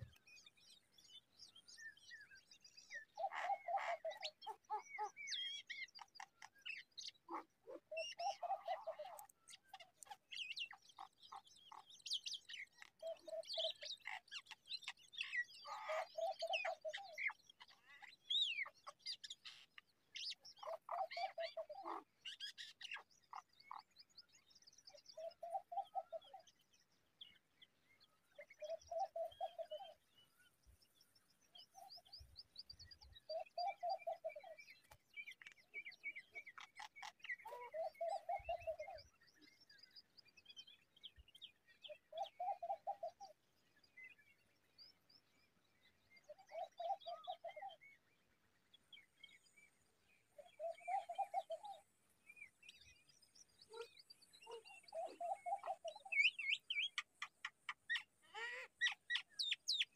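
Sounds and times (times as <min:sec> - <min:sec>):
birds chirping and trilling: 0:00.0 - 0:59.9.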